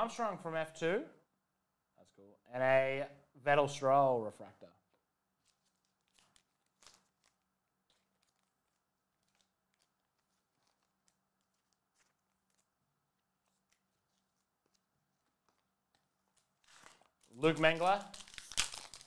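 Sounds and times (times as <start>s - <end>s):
trading cards clicking and rustling: 13.5s - 19.0s.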